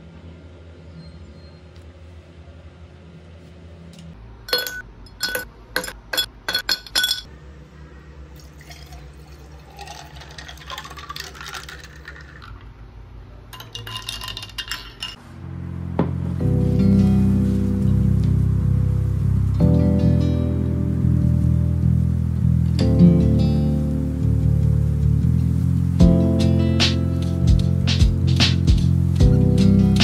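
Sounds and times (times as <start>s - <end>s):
glass clinks: 4.5s - 7.3s
coffee pouring into glass jar: 8.4s - 12.7s, 13.6s - 15.2s.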